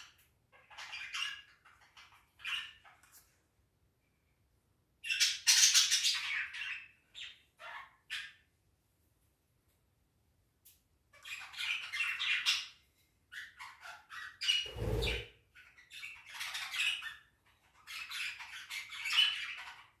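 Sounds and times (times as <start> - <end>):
parakeet squawking: 14.6 - 15.3.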